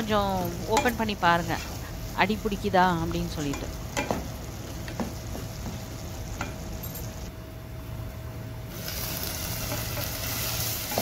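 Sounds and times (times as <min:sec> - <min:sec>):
meat sizzling in a pan: 0:08.7 - 0:11.0.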